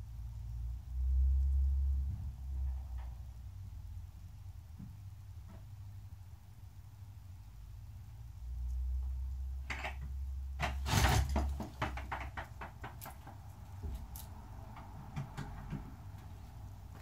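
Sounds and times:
low rumble: 0:00.0 - 0:06.6
sharp clicks and knocks: 0:08.7 - 0:17.0.

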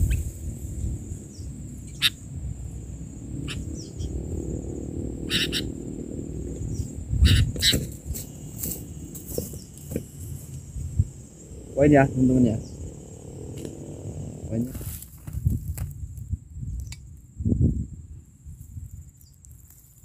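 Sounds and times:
insects buzzing: 0:00.0 - 0:20.0
bird flapping against vegetation: 0:07.5 - 0:10.6, 0:14.7 - 0:16.2.

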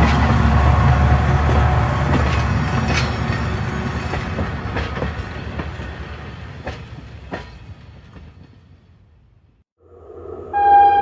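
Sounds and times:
train wheels clacking on rails: 0:00.0 - 0:08.6.

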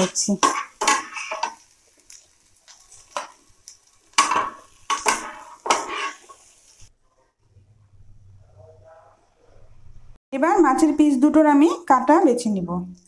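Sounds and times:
metal spatula scraping frying pan: 0:00.0 - 0:06.9.

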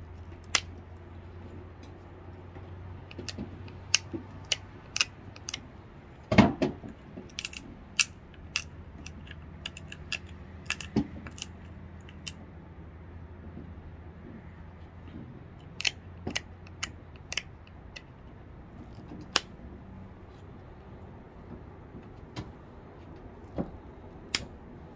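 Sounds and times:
flint flakes clicking and snapping: 0:00.2 - 0:02.0, 0:03.0 - 0:05.7, 0:06.9 - 0:12.4, 0:15.6 - 0:18.1.

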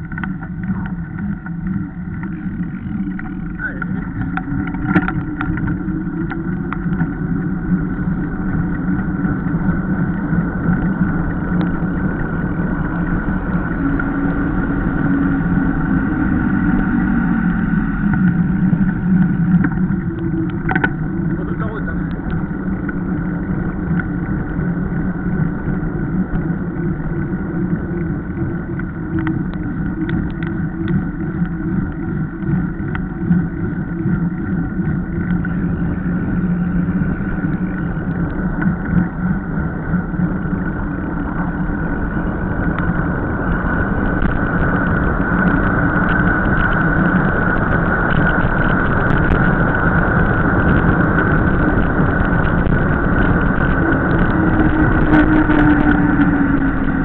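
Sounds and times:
scattered clicks: 0:00.0 - 0:07.5, 0:18.0 - 0:23.0, 0:28.0 - 0:35.6
bike tyre rumble on tarmac: 0:00.0 - 0:57.0
wind rushing over microphone: 0:00.0 - 0:57.0.

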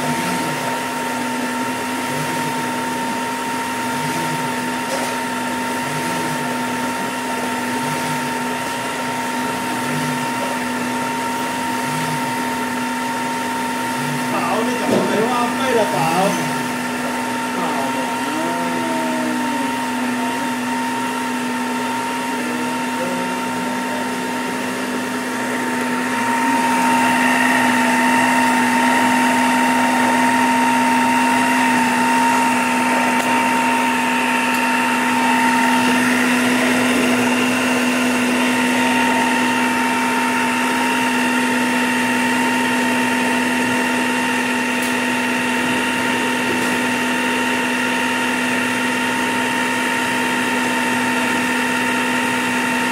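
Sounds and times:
food processor motor whine: 0:00.0 - 0:52.9.

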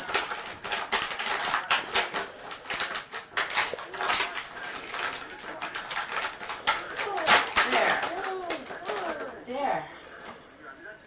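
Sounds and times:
gift wrapping rustling and crinkling: 0:00.0 - 0:09.4.

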